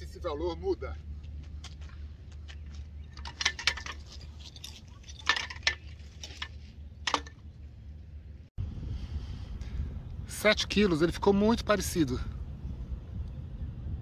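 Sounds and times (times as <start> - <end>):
steady low rumble: 0.0 - 14.0
metallic clinks and rattles: 3.0 - 7.5.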